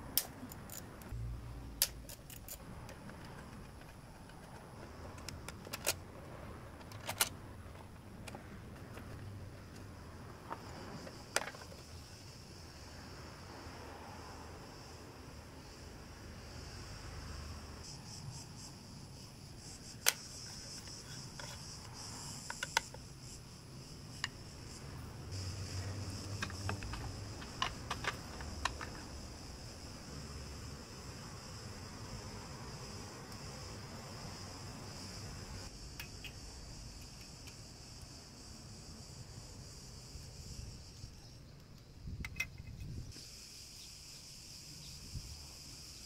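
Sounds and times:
metal tools clicking: 0.2 - 1.1, 1.8 - 2.6, 26.3 - 29.0.

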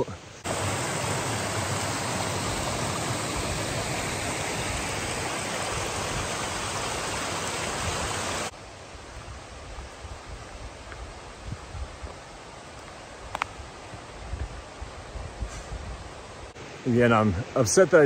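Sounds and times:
stream rushing over boulders: 0.0 - 15.2
footsteps on dirt trail: 9.1 - 14.6.

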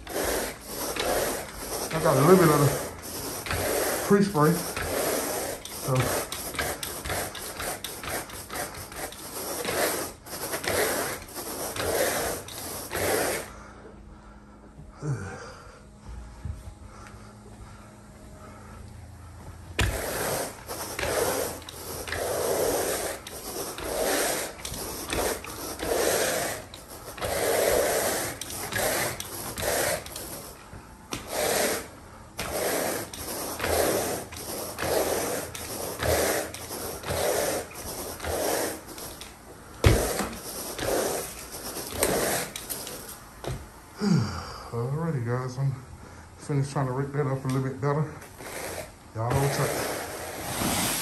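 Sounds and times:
rake scraping through carpet: 0.0 - 13.7, 19.6 - 43.6, 48.2 - 51.0.

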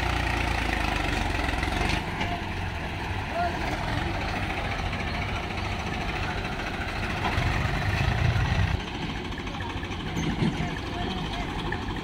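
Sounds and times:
tractor diesel engine labouring: 0.0 - 12.0.

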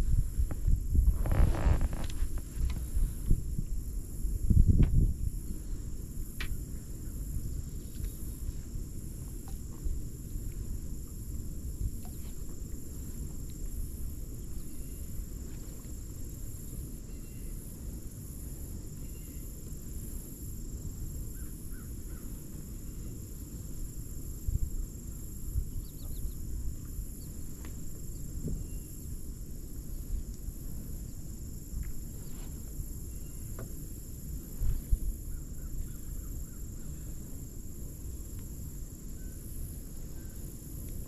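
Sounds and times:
faint bird calls: 25.7 - 27.5.

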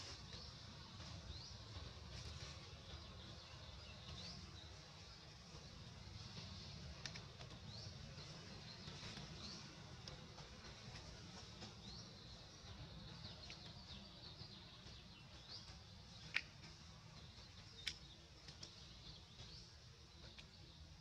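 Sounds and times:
birds chirping: 0.0 - 21.0
low background rumble: 0.0 - 21.0.

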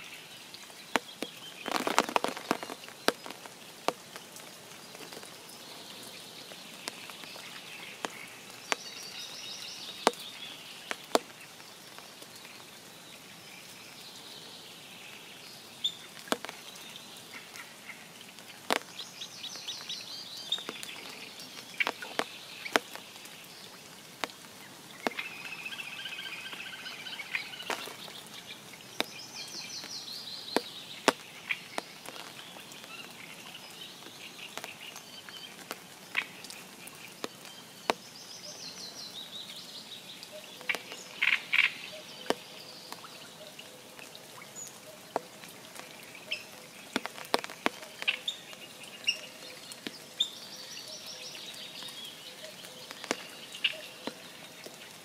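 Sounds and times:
soft steady rain hiss: 0.0 - 55.0
songbirds singing: 0.0 - 55.0
raindrop ticks: 0.5 - 12.9, 15.1 - 55.0.

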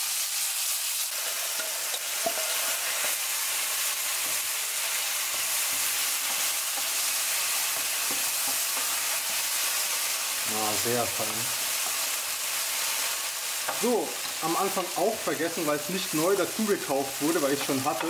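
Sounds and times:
chicken sizzling in pan: 0.0 - 18.0
wooden spoon knocking pan: 17.0 - 18.0.

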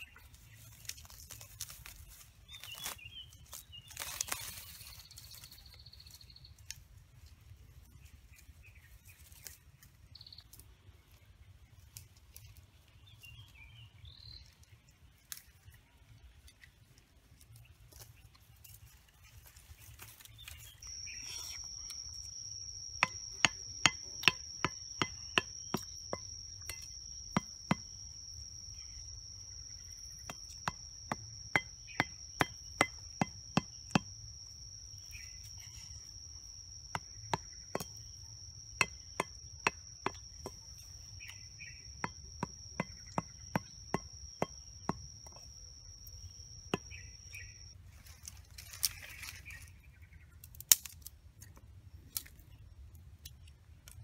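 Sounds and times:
insect high-pitched whine: 19.7 - 49.9
knife chopping bamboo: 23.0 - 28.0, 30.2 - 34.2, 36.9 - 38.0, 38.8 - 40.8, 42.0 - 45.1.

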